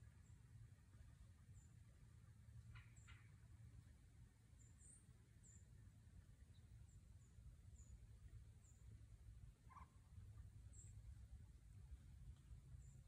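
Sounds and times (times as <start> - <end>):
low steady rumble: 0.0 - 13.0
small bird chirping: 2.7 - 3.4, 4.6 - 5.8, 9.7 - 11.2, 12.4 - 13.0.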